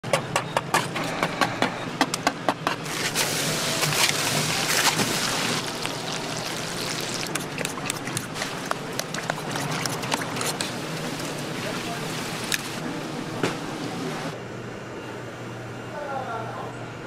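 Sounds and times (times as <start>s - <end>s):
hot oil hissing: 3.2s - 7.4s.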